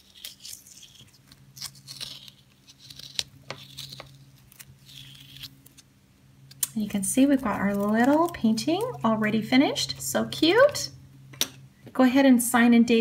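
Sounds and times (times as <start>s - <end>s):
tape peeling off paper: 0.0s - 5.9s, 6.9s - 9.1s.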